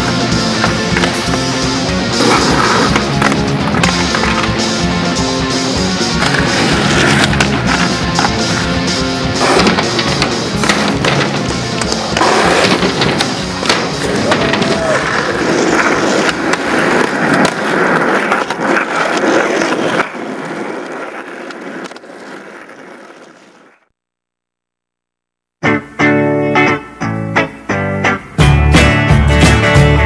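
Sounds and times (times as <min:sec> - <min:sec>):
skateboard wheels rolling on concrete: 0:00.0 - 0:24.1
skateboard clacking on ground: 0:09.4 - 0:23.8.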